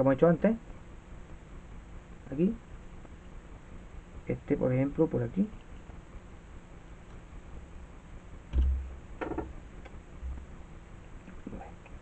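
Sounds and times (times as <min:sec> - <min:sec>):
low thump: 0:08.5 - 0:09.5.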